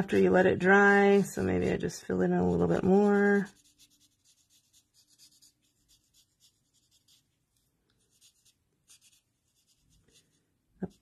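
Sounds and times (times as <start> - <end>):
marker scratching on paper: 0.0 - 1.7, 2.5 - 7.4, 8.0 - 11.0.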